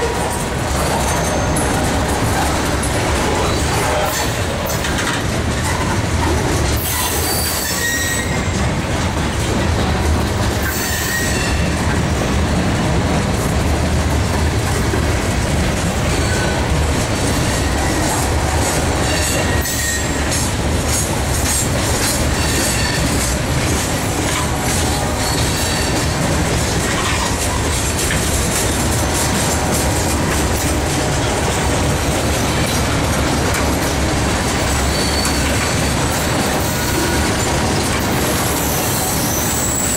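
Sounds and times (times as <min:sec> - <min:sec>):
train cars rumbling: 0:00.0 - 0:39.9
wheels clacking on rails: 0:00.0 - 0:39.9
wheel flange squeals: 0:00.8 - 0:01.8, 0:06.8 - 0:08.5, 0:10.6 - 0:11.7, 0:19.0 - 0:20.3, 0:34.6 - 0:37.5, 0:38.2 - 0:39.9.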